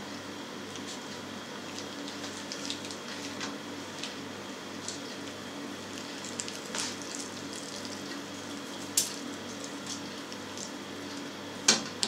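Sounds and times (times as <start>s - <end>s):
meat squelching through nozzle: 1.6s - 4.2s, 4.8s - 11.3s.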